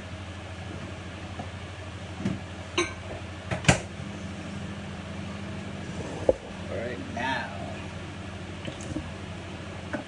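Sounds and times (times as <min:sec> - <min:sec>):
electrical appliance hum: 0:00.0 - 0:10.0.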